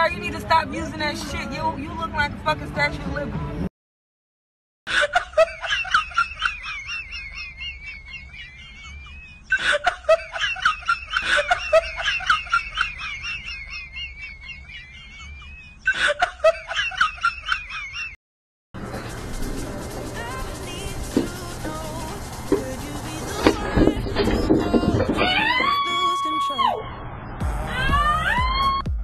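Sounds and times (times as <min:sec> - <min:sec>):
person giggling: 0:04.9 - 0:17.3.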